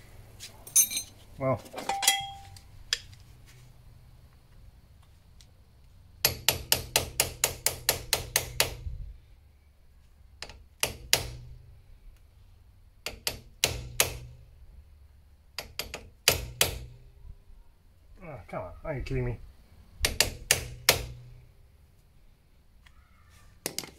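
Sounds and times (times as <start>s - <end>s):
hammer striking metal hub: 1.8s - 2.6s.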